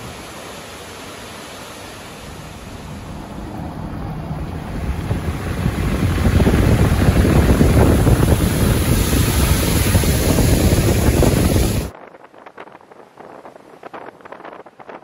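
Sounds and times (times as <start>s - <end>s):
waterfall pouring over rocks: 0.0s - 3.2s, 4.5s - 11.9s
vehicle driving on wet road: 0.0s - 11.9s.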